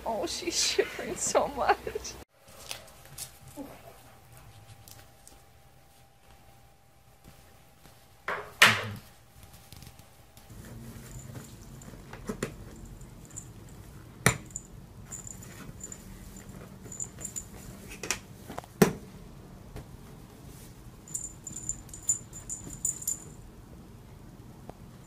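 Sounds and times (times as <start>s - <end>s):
metallic collar tag jingle: 14.4s - 17.6s, 21.1s - 23.4s.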